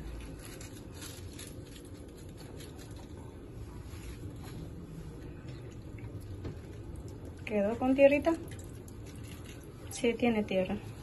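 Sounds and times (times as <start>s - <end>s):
water splashing and dripping: 5.8s - 9.8s.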